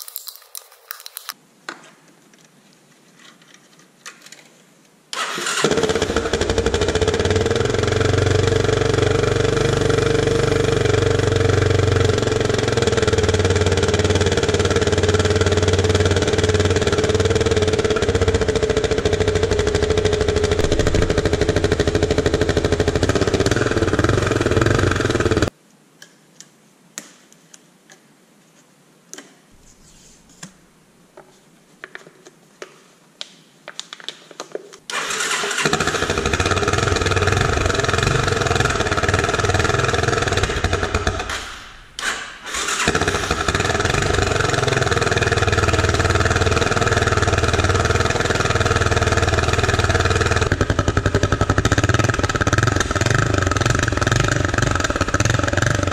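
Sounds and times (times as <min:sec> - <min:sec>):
motorcycle engine running: 0:05.6 - 0:25.5, 0:35.6 - 0:41.4, 0:42.8 - 0:55.9.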